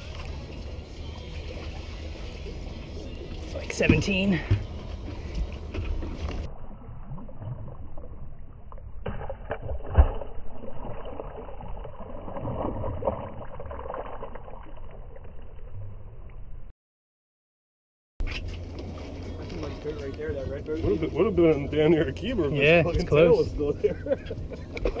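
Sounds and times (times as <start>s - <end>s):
water noise: 0.0s - 16.7s, 18.2s - 25.0s
fish splashing into water: 7.0s - 15.3s.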